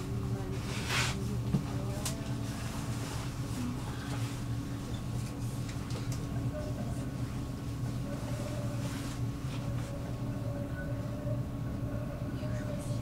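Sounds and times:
tram motors humming: 0.0s - 13.0s.

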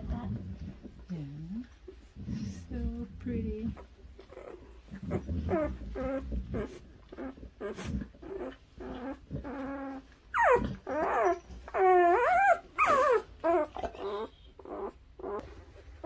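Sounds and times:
puppy whining: 3.7s - 16.0s.

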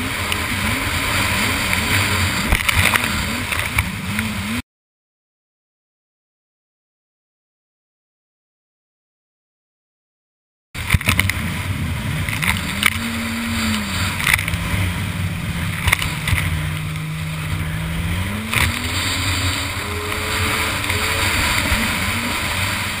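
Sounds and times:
hull slapping water: 0.0s - 4.6s, 10.8s - 23.0s
jet ski engine running: 0.0s - 4.6s, 10.8s - 23.0s
rush of spray and wind: 0.0s - 4.6s, 10.8s - 23.0s.

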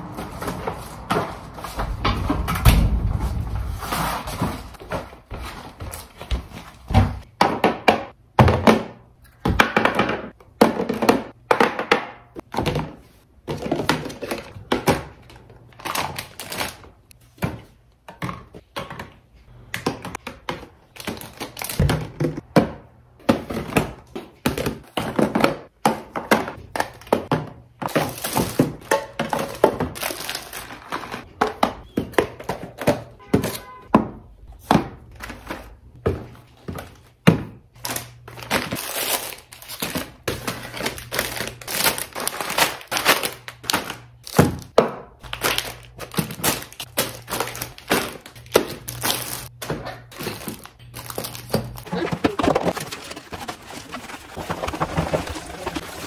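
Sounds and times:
plastic packaging crinkling: 37.8s - 56.0s.

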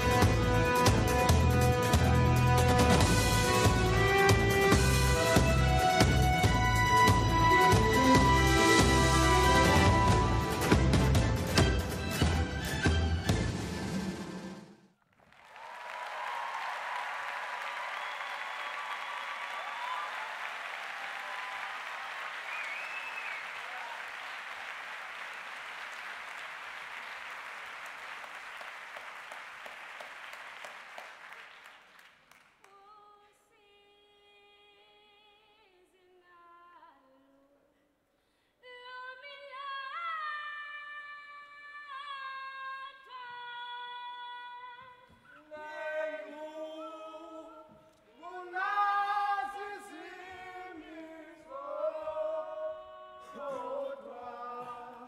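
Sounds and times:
audience applause: 15.1s - 32.7s
woman singing unaccompanied: 32.7s - 37.6s, 38.6s - 45.0s
choir singing a cappella: 45.5s - 55.0s.

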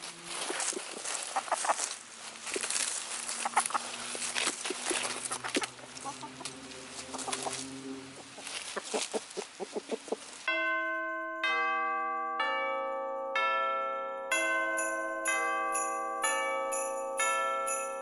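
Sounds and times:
pecking and scratching in leaves: 0.0s - 10.5s
chickens clucking softly: 0.6s - 1.9s, 3.4s - 3.9s, 5.3s - 10.3s.

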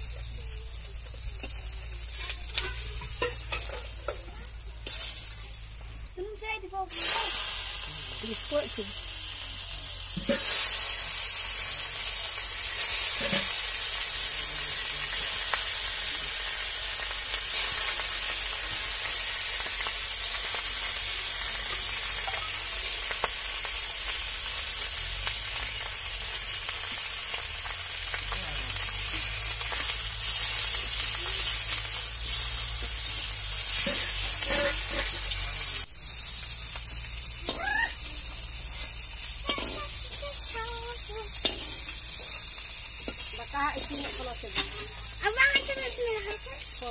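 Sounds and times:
fish sizzling in hot oil: 0.0s - 46.9s
metal spatula scraping pan: 2.1s - 4.2s, 13.0s - 13.6s, 33.6s - 35.4s, 38.8s - 40.0s.

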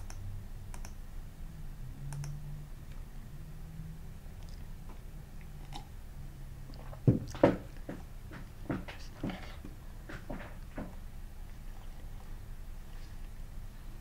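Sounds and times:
computer mouse clicking: 0.0s - 1.0s, 2.1s - 2.4s
low steady hum: 0.0s - 14.0s.

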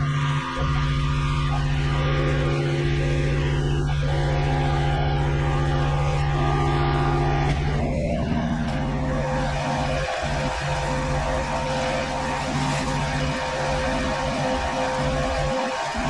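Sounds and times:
pressure washer engine running: 0.0s - 16.0s.

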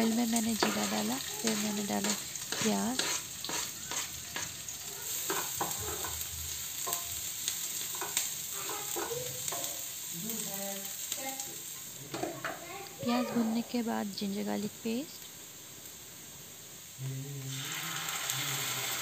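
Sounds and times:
onion sizzling in a pan: 0.0s - 19.0s
spatula scraping and tapping a pan: 0.4s - 10.0s.

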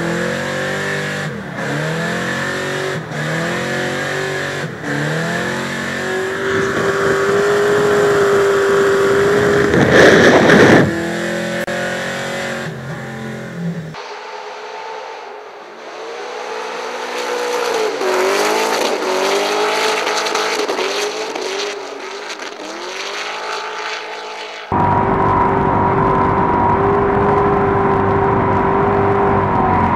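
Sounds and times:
car engine revving high: 0.0s - 29.9s.

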